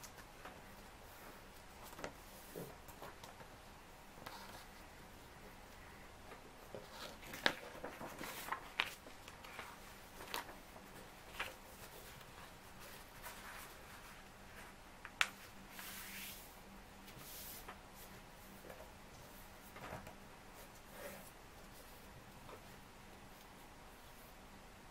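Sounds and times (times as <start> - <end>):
paper rustling and crinkling: 6.6 - 14.8.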